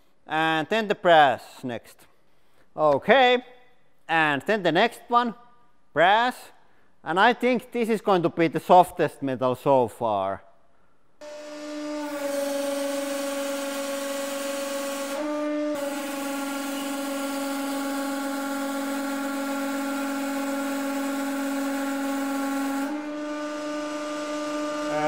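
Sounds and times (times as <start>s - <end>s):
hydraulic press hum: 11.2s - 25.0s.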